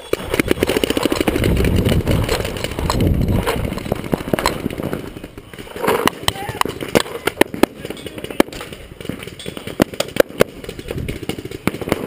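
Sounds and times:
gear knocking: 0:00.0 - 0:11.7
wind on microphone: 0:00.3 - 0:05.4.

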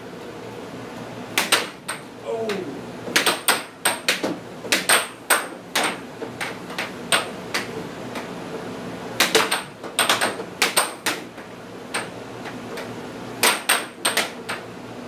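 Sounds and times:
air hockey puck clacking: 0:01.4 - 0:08.3, 0:09.2 - 0:14.7.

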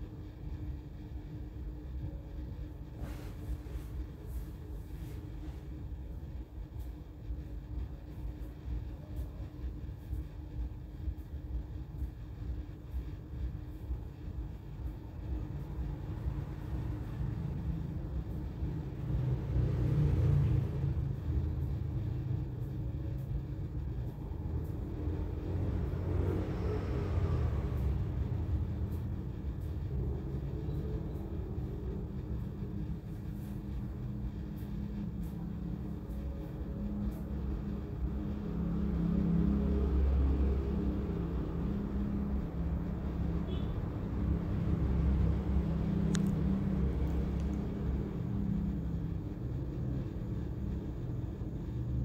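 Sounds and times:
continuous low hum: 0:00.0 - 0:52.0
steady low rumble: 0:00.0 - 0:52.0.

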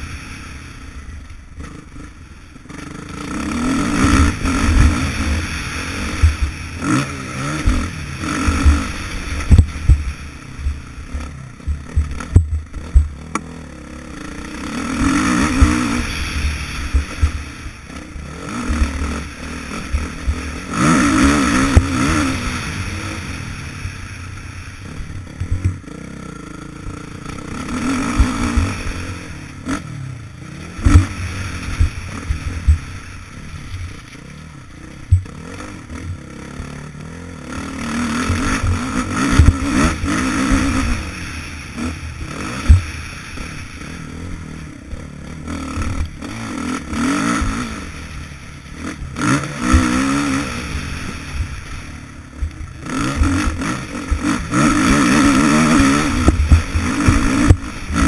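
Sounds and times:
dirt bike engine revving: 0:00.0 - 0:58.0
thuds and clatter over bumps: 0:08.4 - 0:13.5, 0:25.3 - 0:25.9, 0:30.8 - 0:32.9, 0:35.0 - 0:35.4, 0:38.2 - 0:41.0, 0:52.4 - 0:58.0.

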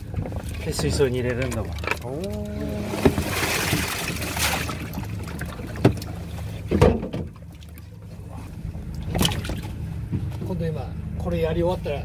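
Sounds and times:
low machinery hum: 0:00.0 - 0:12.0
water splashing from hose: 0:00.4 - 0:06.4.

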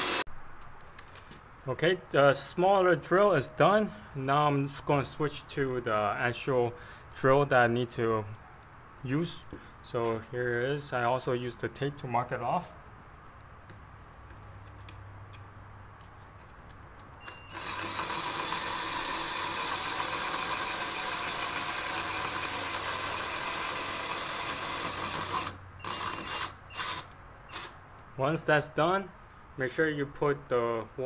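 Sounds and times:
drill drilling into brick: 0:00.0 - 0:00.3, 0:17.3 - 0:27.8.

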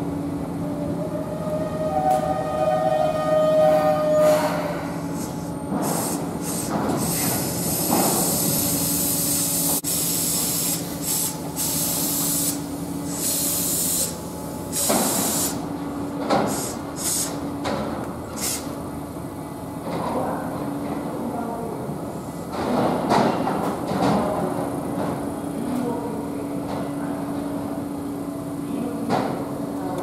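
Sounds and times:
electric train humming: 0:00.0 - 0:19.8
brake air hiss bursts: 0:04.4 - 0:15.7, 0:16.4 - 0:17.4, 0:18.3 - 0:18.8.

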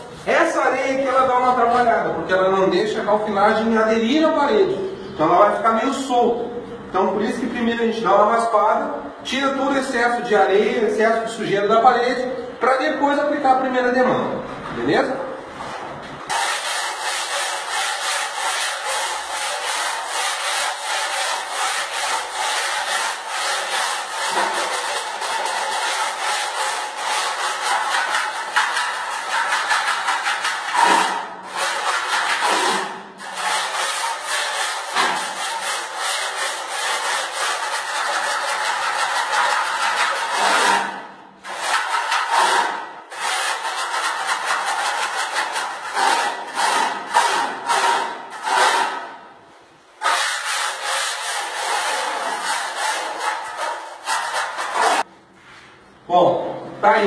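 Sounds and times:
trowel scraping rough wall: 0:15.6 - 0:49.2, 0:50.0 - 0:55.1.

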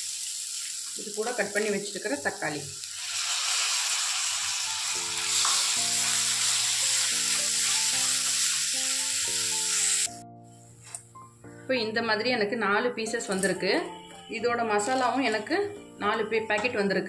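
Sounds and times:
vegetables sizzling in hot oil: 0:00.0 - 0:10.2
background music with held notes: 0:03.8 - 0:17.0.

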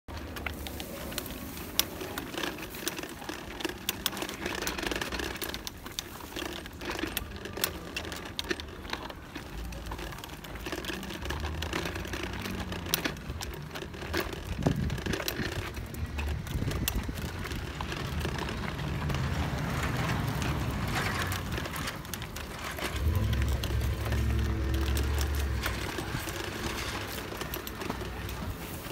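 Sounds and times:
plastic tricycle rattling on concrete: 0:00.1 - 0:28.9
low rumble: 0:14.4 - 0:28.8.

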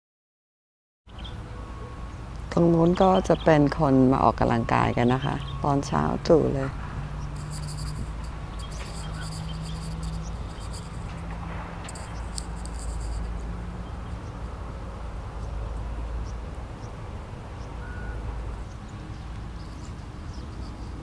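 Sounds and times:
steady low rumble: 0:02.5 - 0:14.4.

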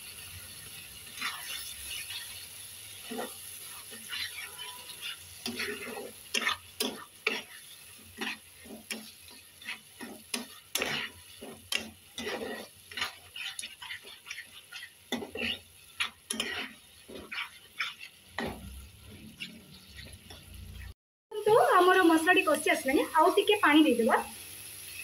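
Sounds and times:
light sizzle of frying: 0:00.0 - 0:25.0
spatula scraping pan: 0:01.0 - 0:20.9.

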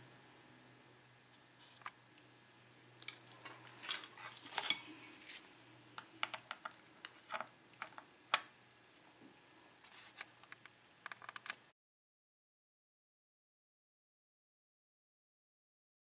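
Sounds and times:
small metal objects clinking: 0:03.0 - 0:05.4.

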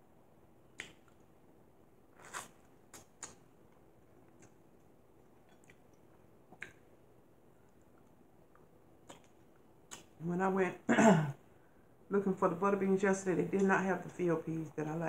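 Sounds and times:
person chewing with mouth smacks: 0:02.2 - 0:03.4, 0:04.2 - 0:06.9, 0:07.6 - 0:10.2.

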